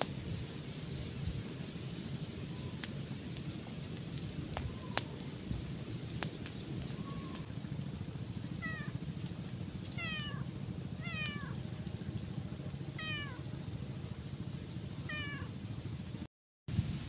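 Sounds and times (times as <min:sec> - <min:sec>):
cat meowing: 0:08.6 - 0:09.0, 0:10.0 - 0:11.6, 0:13.0 - 0:13.4, 0:15.0 - 0:15.5.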